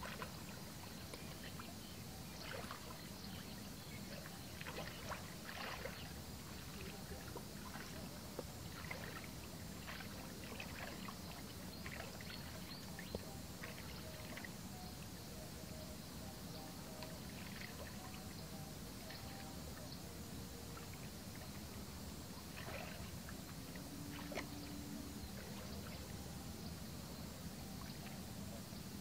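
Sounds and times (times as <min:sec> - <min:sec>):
muddy water sloshing and splashing: 0:00.0 - 0:14.7, 0:17.0 - 0:19.7, 0:20.7 - 0:26.3
steady low background noise: 0:00.0 - 0:29.0.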